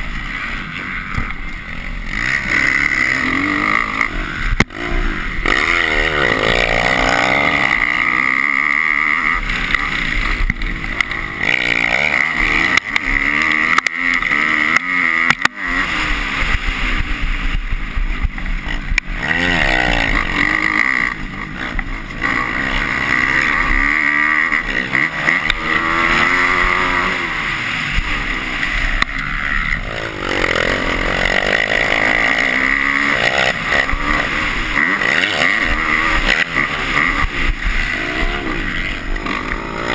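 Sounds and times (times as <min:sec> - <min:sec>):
motocross bike engine revving: 0:00.0 - 0:39.9.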